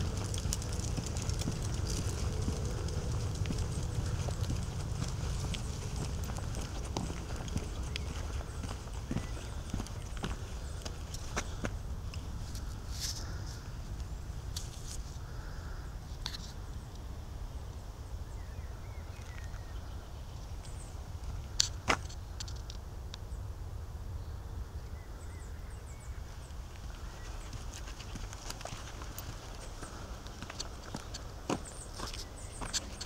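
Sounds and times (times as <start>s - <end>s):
footsteps on grass and path: 0.0s - 13.6s, 26.3s - 33.0s
low rumble: 0.0s - 14.5s.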